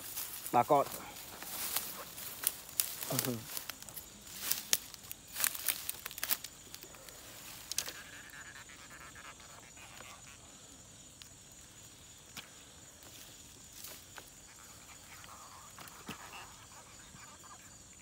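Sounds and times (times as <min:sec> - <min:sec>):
rustling grass: 0:00.0 - 0:08.0
faint high insect drone: 0:00.0 - 0:18.0.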